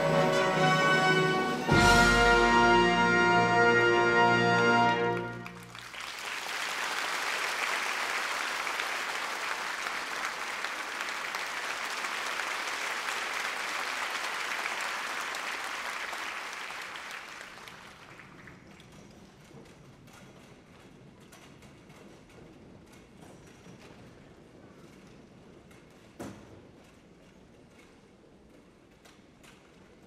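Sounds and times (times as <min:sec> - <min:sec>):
audience applauding: 0:04.8 - 0:18.9.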